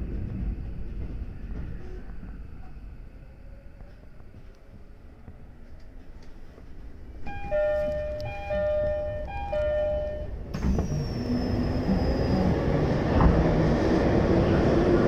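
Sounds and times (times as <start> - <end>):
low hum from train: 0.0 - 15.0
train door chime: 7.2 - 10.7.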